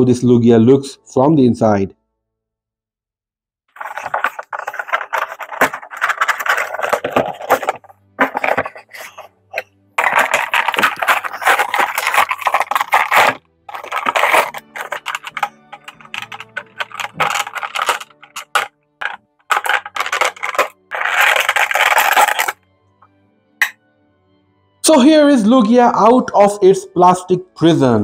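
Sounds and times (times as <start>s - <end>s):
packaging rustling and crinkling: 3.7s - 22.6s.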